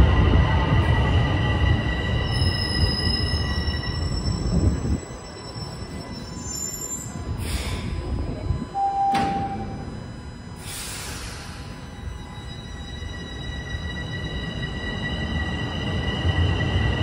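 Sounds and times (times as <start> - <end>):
train low rumble: 0.0 - 17.0
short steady tone: 8.6 - 11.4.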